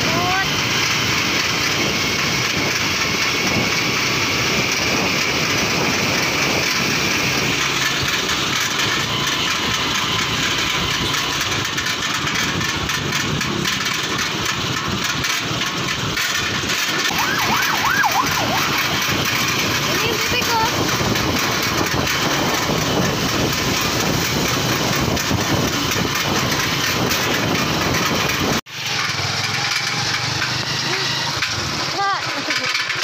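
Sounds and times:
motorcycle engine: 0:00.0 - 0:33.0
wavering high tone: 0:17.1 - 0:19.1
wind rushing: 0:17.1 - 0:28.6.

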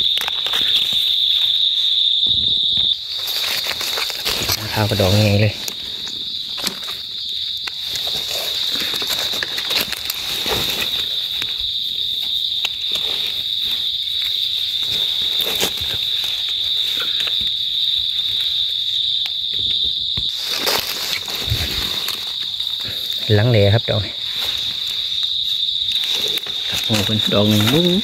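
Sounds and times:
insect chorus droning: 0:00.0 - 0:28.0
footsteps in dry leaves: 0:20.3 - 0:23.3, 0:24.2 - 0:28.0.

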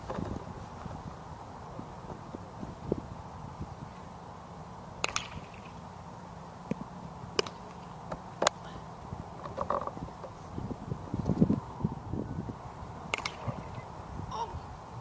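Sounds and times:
wind buffeting microphone: 0:00.0 - 0:03.9, 0:09.9 - 0:15.0.

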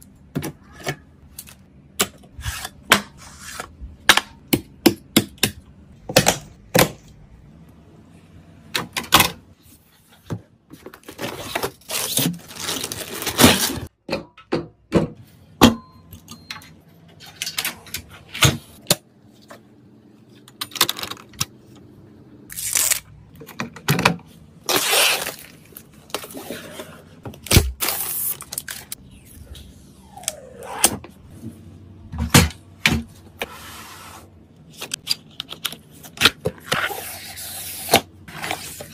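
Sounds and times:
plastic and cardboard rustling: 0:09.6 - 0:13.9.

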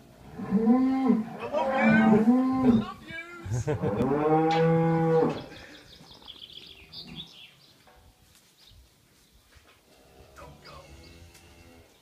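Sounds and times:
cow mooing: 0:00.3 - 0:02.9, 0:03.8 - 0:05.4.

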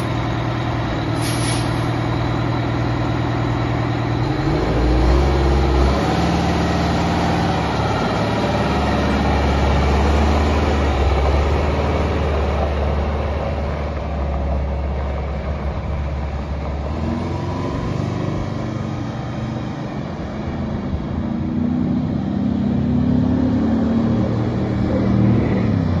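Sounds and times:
truck driving on gravel: 0:00.0 - 0:20.4
diesel truck engine running: 0:00.0 - 0:22.2.

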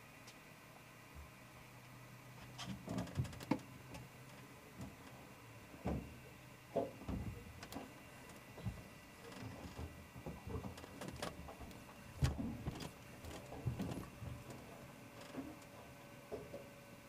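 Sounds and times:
dull knocks and thumps: 0:05.8 - 0:06.2, 0:06.8 - 0:07.8, 0:12.2 - 0:14.5.

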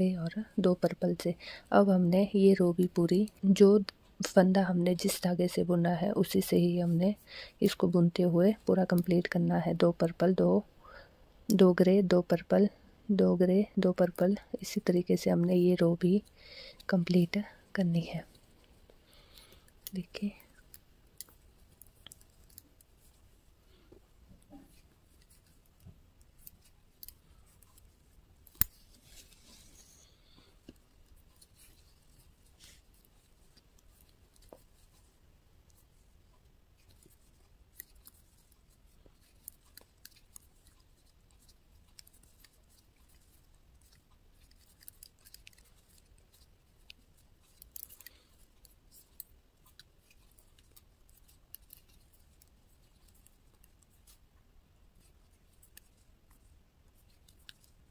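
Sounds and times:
metal knitting needles clicking: 0:19.3 - 0:23.2, 0:24.4 - 0:29.9, 0:30.6 - 0:35.0, 0:35.6 - 0:54.3, 0:55.0 - 0:57.9.

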